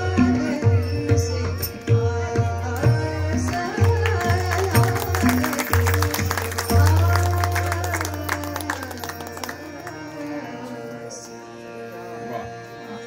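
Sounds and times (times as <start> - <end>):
tabla strokes: 0.0 - 10.3
woman singing: 0.0 - 11.8
harmonium chord: 0.0 - 13.0.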